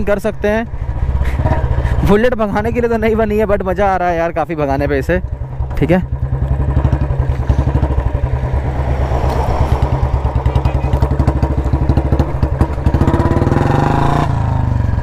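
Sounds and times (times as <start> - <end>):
motorcycle engine thumping: 5.2 - 13.8.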